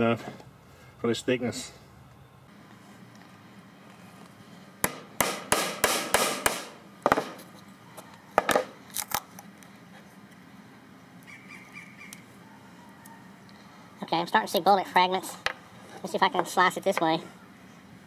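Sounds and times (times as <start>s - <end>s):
hammer striking chisel in wood: 4.8s - 7.4s.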